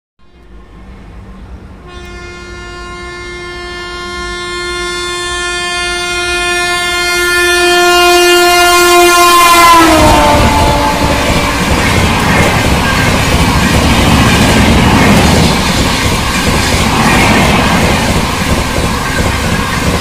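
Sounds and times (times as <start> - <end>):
passing train coaches clattering: 0.3 - 20.0
locomotive horn long blast: 1.8 - 11.6.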